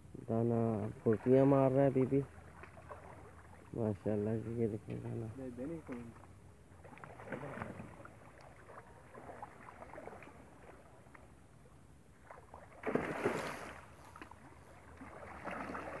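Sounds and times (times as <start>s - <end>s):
fish splashing in water: 2.2s - 3.7s, 5.8s - 11.3s, 12.2s - 16.0s.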